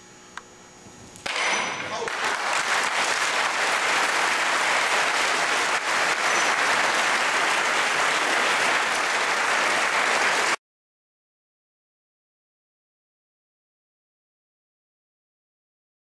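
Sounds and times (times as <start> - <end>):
crowd applauding: 1.9 - 10.6.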